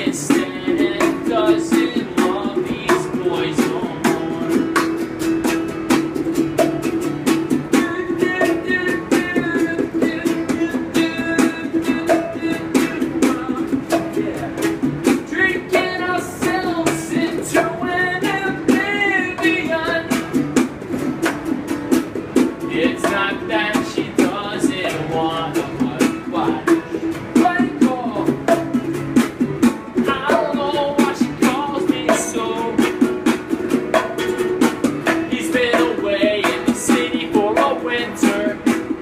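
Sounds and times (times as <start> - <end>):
man singing: 0.0 - 5.0, 7.6 - 20.3, 22.6 - 28.7, 30.0 - 33.1, 35.0 - 39.0
acoustic guitar strumming: 0.0 - 39.0
box drum struck by hand: 0.0 - 39.0.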